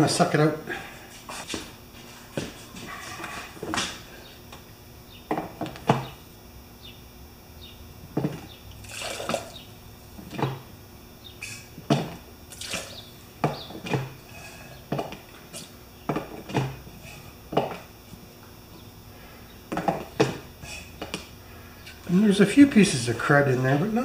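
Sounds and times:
baster slurping and squirting liquid: 0:08.8 - 0:09.6, 0:12.5 - 0:13.0.

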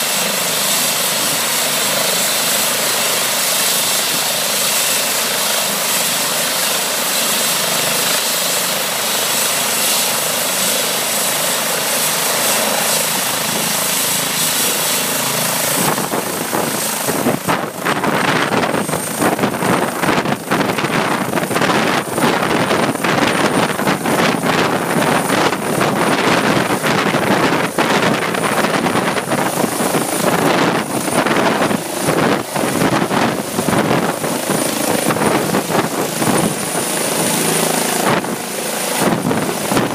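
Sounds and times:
helicopter turbine whine and rotor: 0:00.0 - 0:39.9.

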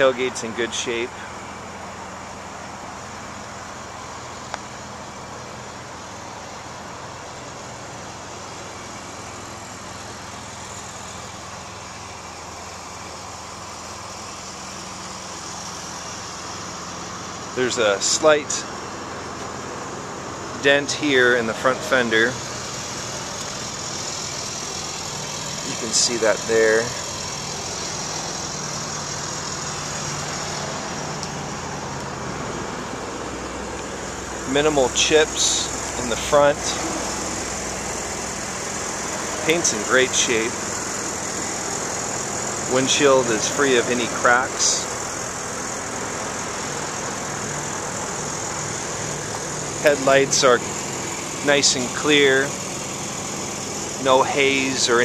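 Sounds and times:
engine idling hum: 0:00.0 - 0:55.0
constant even noise: 0:14.2 - 0:55.0.

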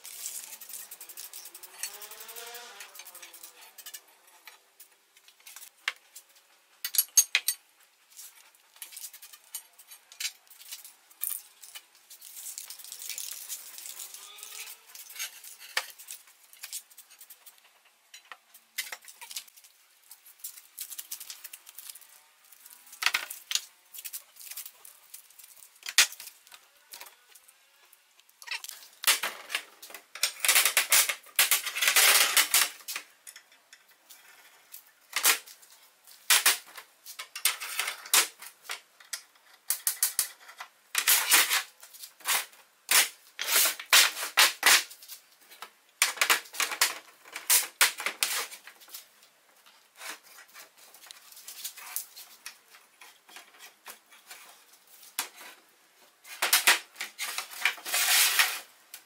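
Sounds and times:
metal pipes and clamps clinking: 0:06.8 - 0:07.6.

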